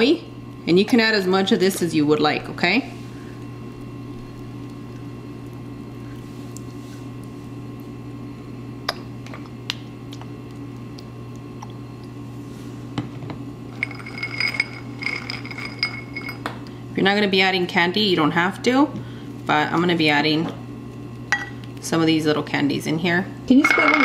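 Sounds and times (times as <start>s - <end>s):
low steady hum: 0.0s - 24.0s
glass clinking: 13.7s - 16.5s, 23.6s - 24.0s.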